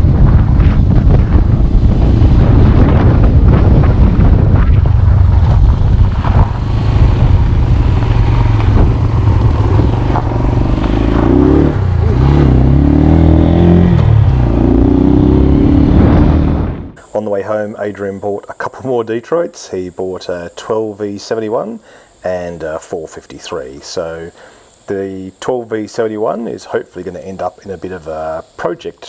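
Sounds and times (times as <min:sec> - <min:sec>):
motorcycle engine accelerating: 0:00.0 - 0:17.0
wind buffeting microphone: 0:00.0 - 0:17.0.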